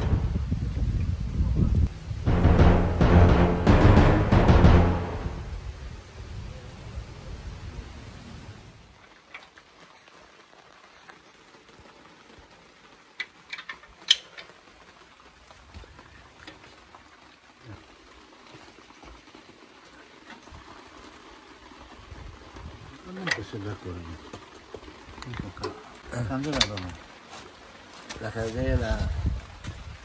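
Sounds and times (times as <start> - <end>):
clicks and knocks of handled parts: 13.2 - 14.5.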